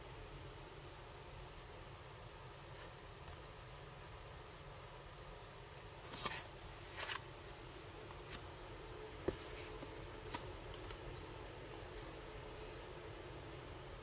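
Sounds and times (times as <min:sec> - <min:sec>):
low hiss: 0:00.0 - 0:14.0
paper cards rustling: 0:06.0 - 0:11.1.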